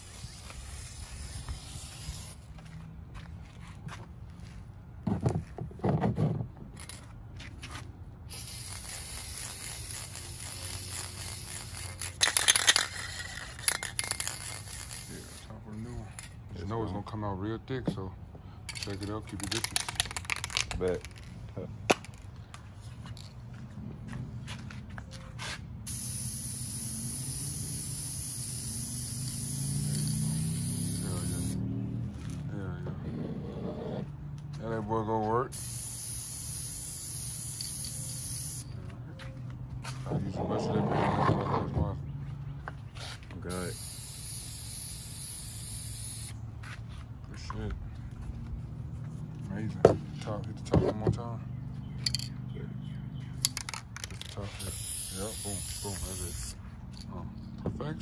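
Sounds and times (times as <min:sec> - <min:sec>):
aerosol spray can: 0:00.0 - 0:02.4, 0:08.3 - 0:15.6, 0:25.9 - 0:31.7, 0:35.5 - 0:38.7, 0:43.5 - 0:46.4, 0:53.6 - 0:56.6.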